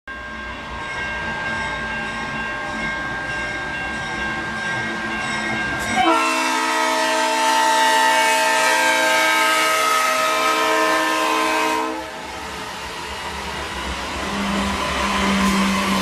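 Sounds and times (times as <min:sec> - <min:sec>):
train rumbling past: 0:00.1 - 0:16.0
loud train horn blast: 0:06.0 - 0:12.2.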